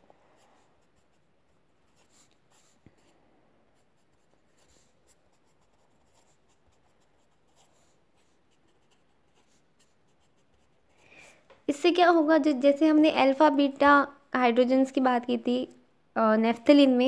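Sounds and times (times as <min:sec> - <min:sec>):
pen scratching on paper: 0:00.4 - 0:03.2, 0:03.8 - 0:11.0.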